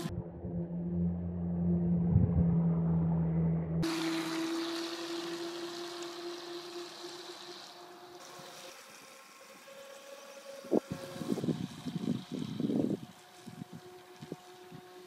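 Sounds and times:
toy speedboat motor whining: 0:03.8 - 0:15.0
wind buffeting microphone: 0:10.7 - 0:15.0.

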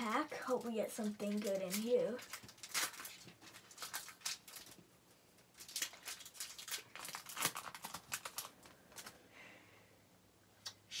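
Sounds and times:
foil wrapper crinkling and tearing: 0:00.0 - 0:04.8, 0:05.5 - 0:09.2.

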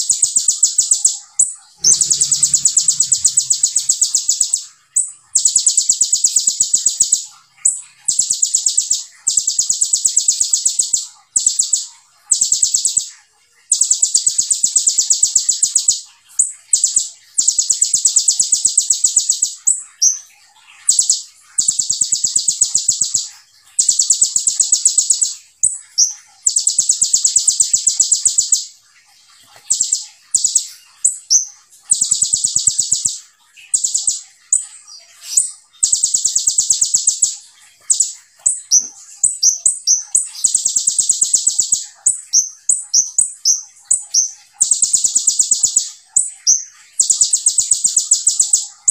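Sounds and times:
bird singing fast high trills: 0:00.0 - 0:13.1
bird chirps: 0:00.0 - 0:48.9.

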